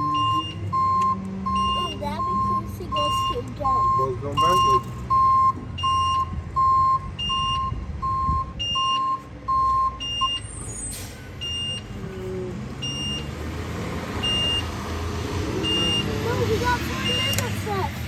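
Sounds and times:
high-pitched reversing alarm beeps: 0:00.0 - 0:13.3, 0:14.2 - 0:14.7
low-pitched reversing alarm beeps: 0:00.0 - 0:13.3, 0:14.2 - 0:14.7.

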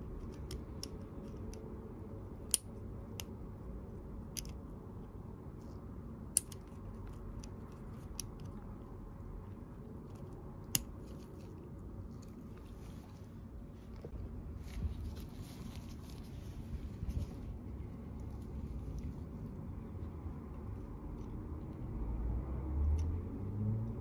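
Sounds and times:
pick tool clicking in connector: 0:06.3 - 0:06.8.

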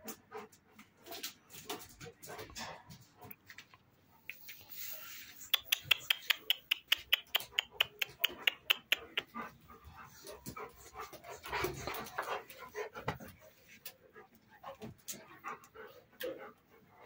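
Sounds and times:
dog panting: 0:04.6 - 0:17.0.

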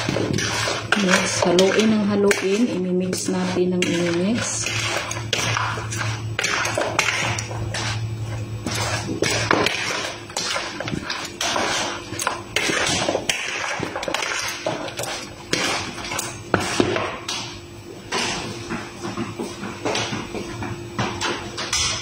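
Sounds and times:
fork scraping plastic bowl: 0:00.0 - 0:17.0.

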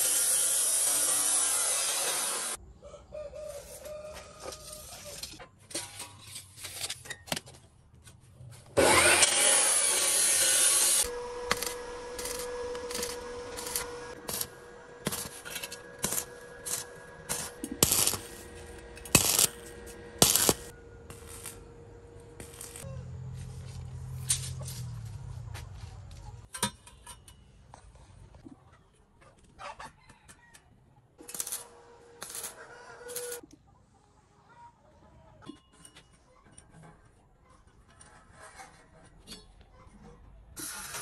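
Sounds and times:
welding arc crackling and popping: 0:09.5 - 0:21.6, 0:22.4 - 0:22.9, 0:31.2 - 0:33.4
steady whine: 0:11.0 - 0:22.8.

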